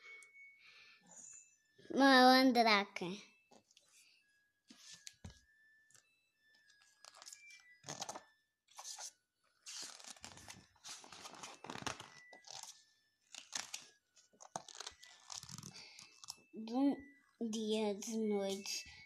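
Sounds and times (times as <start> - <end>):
book pages turning: 4.7 - 6.0, 6.6 - 16.5.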